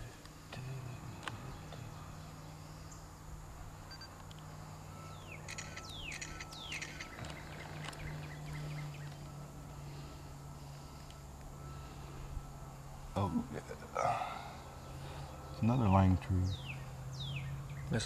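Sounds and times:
songbird singing: 0.0s - 18.0s
steady low hum: 0.0s - 18.0s.

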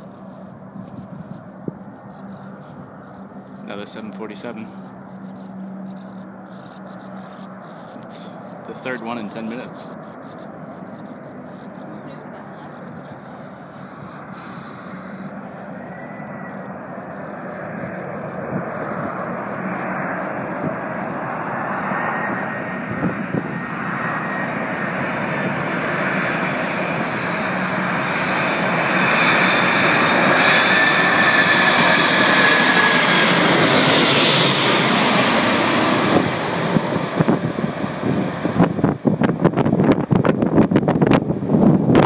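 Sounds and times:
jet engines with high whine: 0.0s - 42.0s
wind buffeting microphone: 0.6s - 3.2s, 17.5s - 24.4s, 33.6s - 42.0s.

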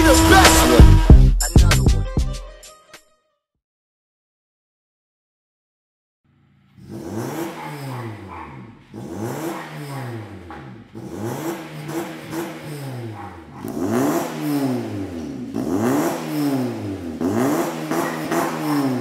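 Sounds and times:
car engine revving: 6.3s - 19.0s.

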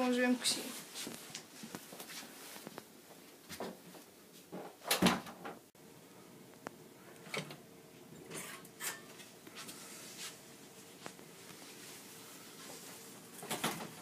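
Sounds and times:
faint steady hum: 0.0s - 14.0s
footsteps: 0.5s - 4.6s, 8.4s - 13.4s.

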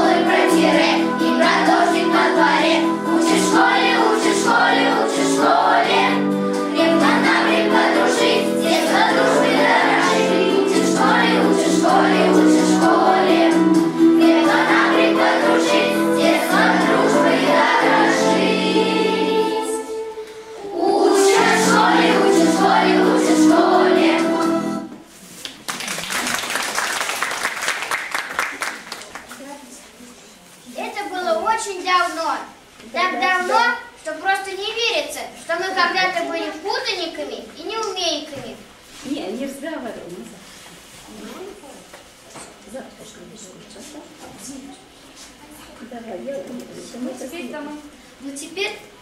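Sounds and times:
children's choir singing: 0.0s - 25.0s
backing music: 0.0s - 25.1s
applause: 25.5s - 29.5s.

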